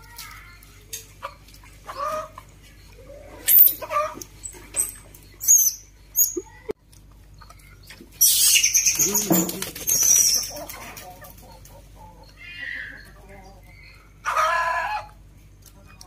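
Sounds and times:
baby monkeys squealing: 0:03.0 - 0:06.7, 0:08.2 - 0:11.1, 0:12.3 - 0:13.6.

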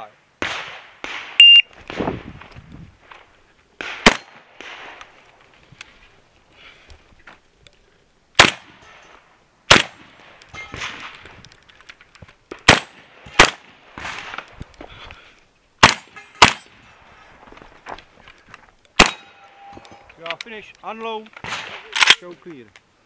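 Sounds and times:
shotgun shots with echo: 0:03.8 - 0:05.0, 0:08.4 - 0:08.8, 0:09.7 - 0:10.1, 0:12.6 - 0:14.4, 0:15.8 - 0:16.7, 0:21.4 - 0:21.9.

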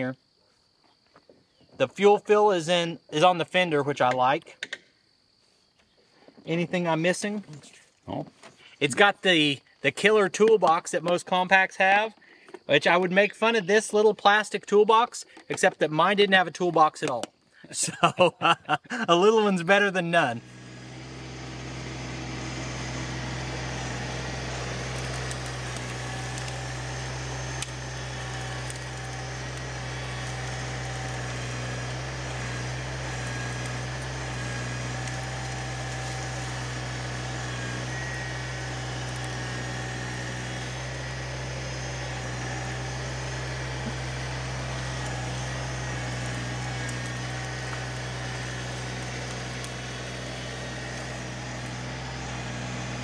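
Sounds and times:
tractor diesel engine running: 0:20.2 - 0:53.0.

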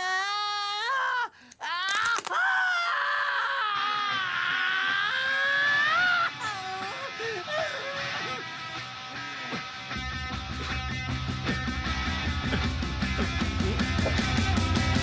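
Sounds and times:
man screaming in pain: 0:00.0 - 0:08.8.

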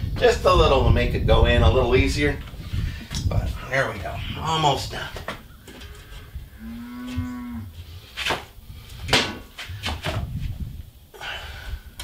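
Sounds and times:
cow mooing: 0:06.5 - 0:07.7.

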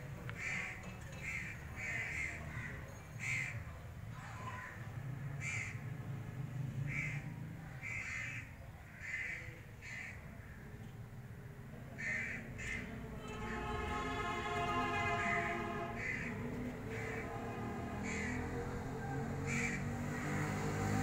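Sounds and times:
birds calling: 0:00.2 - 0:05.9, 0:11.8 - 0:20.7.

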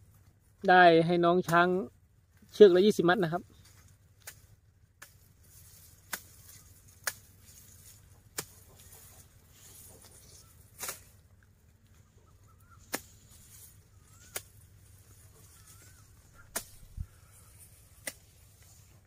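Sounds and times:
knife chopping grass stalks: 0:04.2 - 0:11.2, 0:12.7 - 0:18.8.

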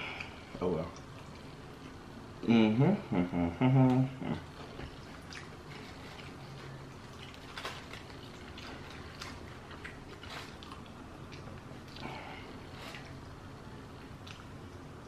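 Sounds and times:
steady low hum: 0:00.0 - 0:15.0
person chewing and lip smacking: 0:03.8 - 0:13.3, 0:14.0 - 0:14.9.

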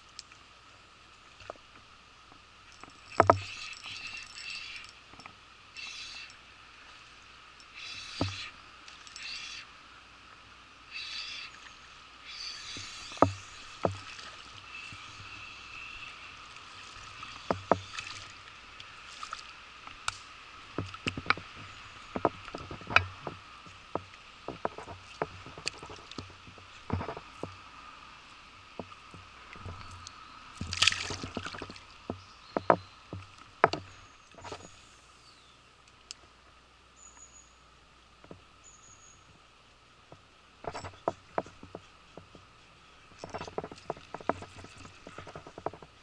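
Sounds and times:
water splashes: 0:02.6 - 0:34.8.

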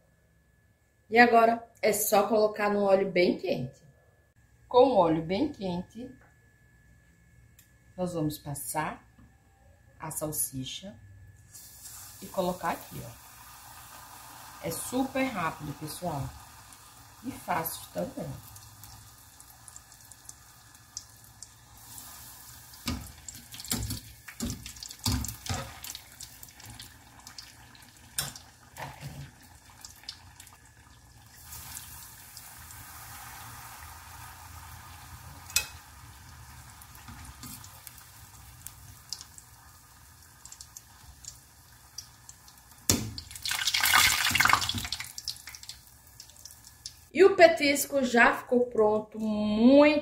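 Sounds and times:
food deep-frying in oil: 0:11.5 - 0:47.1.

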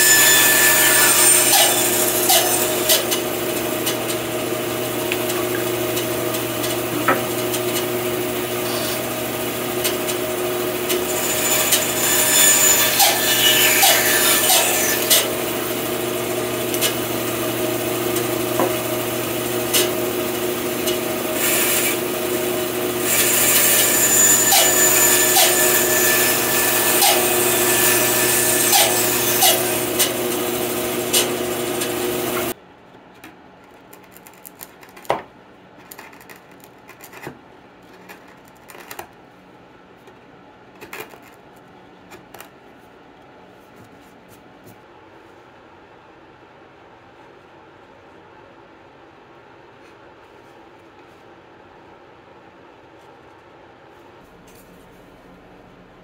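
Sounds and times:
bandsaw cutting wood: 0:00.0 - 0:32.6.

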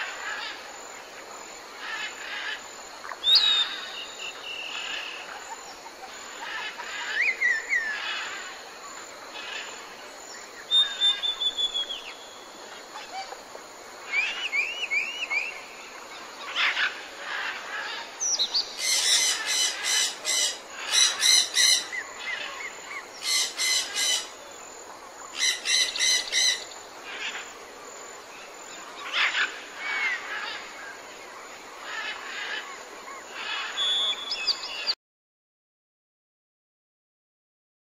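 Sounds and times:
outdoor hiss: 0:00.0 - 0:34.9
birds chirping and calling: 0:01.8 - 0:24.6, 0:25.3 - 0:27.6, 0:31.8 - 0:35.0.

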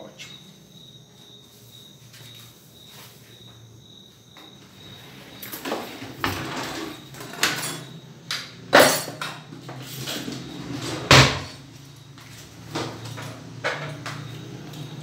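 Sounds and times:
kitchen knocks and clunks: 0:05.4 - 0:11.6, 0:12.6 - 0:14.3.

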